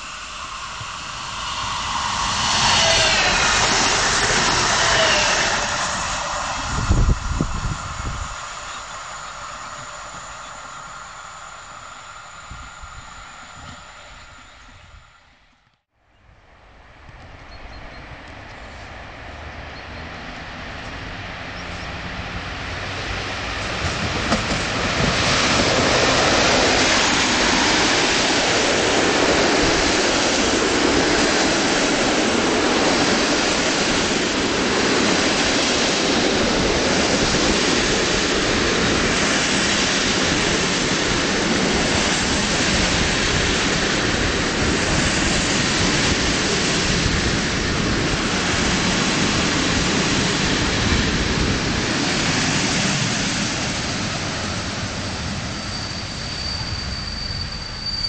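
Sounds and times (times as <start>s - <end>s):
passenger train passing: 0.0s - 58.0s.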